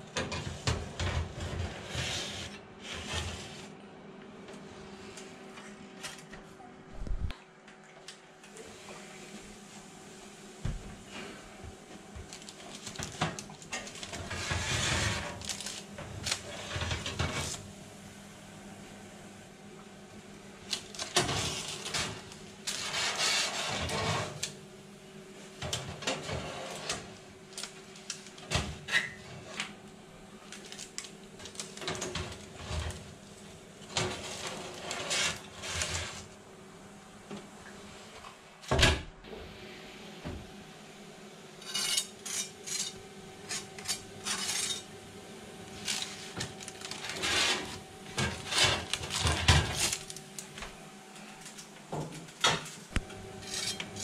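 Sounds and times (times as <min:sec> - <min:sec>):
metal trays scraping and clattering: 0:00.2 - 0:03.7, 0:13.1 - 0:17.6, 0:21.0 - 0:24.4, 0:25.6 - 0:27.1, 0:33.9 - 0:36.3, 0:41.6 - 0:44.9, 0:45.8 - 0:50.1, 0:53.4 - 0:54.0.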